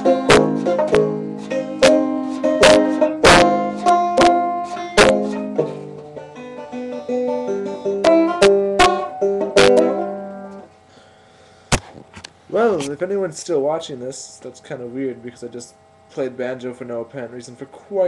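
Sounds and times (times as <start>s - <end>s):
banjo playing: 0.0s - 10.7s.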